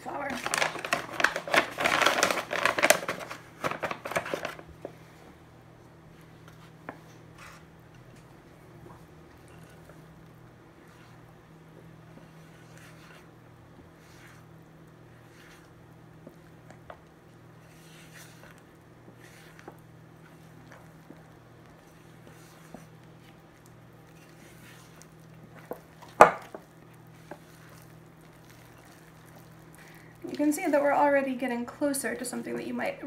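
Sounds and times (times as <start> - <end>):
spatula squishing dough: 6.2 - 31.1.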